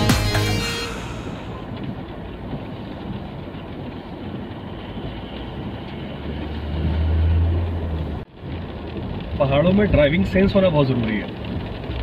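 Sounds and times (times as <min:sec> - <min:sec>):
car engine drone: 0:00.0 - 0:09.6
tyres on wet road: 0:00.0 - 0:12.0.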